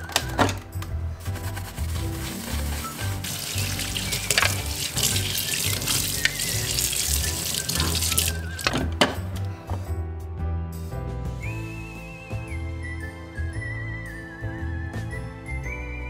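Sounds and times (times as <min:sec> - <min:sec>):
tap water running into sink: 0:03.0 - 0:09.2
water splashing on plastic tray: 0:03.1 - 0:09.0.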